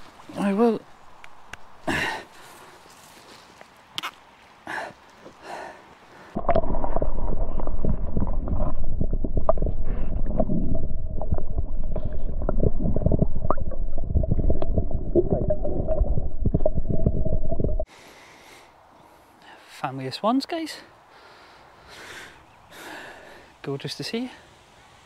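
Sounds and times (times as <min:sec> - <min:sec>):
underwater water rumble: 0:06.4 - 0:17.9.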